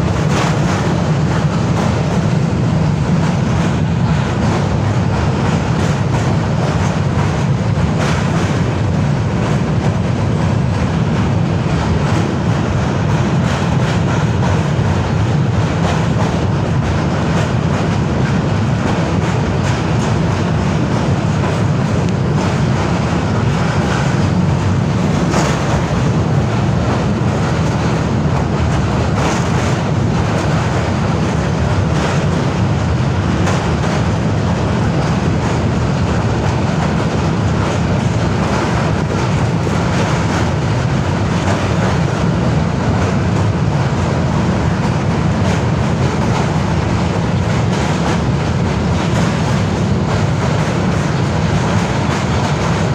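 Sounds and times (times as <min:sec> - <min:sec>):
train wheels rumbling on rails: 0:00.0 - 0:52.9.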